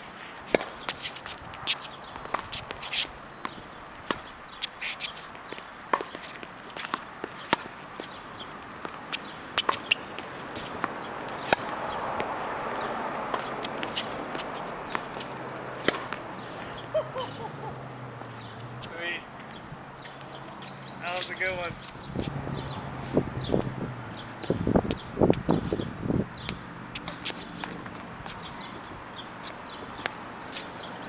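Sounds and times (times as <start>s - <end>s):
footsteps on the court: 0.0s - 17.0s, 18.1s - 31.0s
rackets striking tennis ball: 0.4s - 4.3s, 5.9s - 8.2s, 8.8s - 16.9s, 26.5s - 28.7s
tennis ball bouncing: 0.5s - 4.7s, 5.5s - 8.2s, 8.8s - 17.4s, 18.2s - 30.8s.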